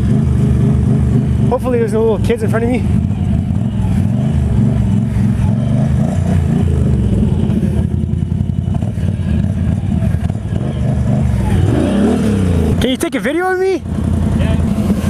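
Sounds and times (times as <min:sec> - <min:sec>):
atv engine revving: 0:00.0 - 0:15.0.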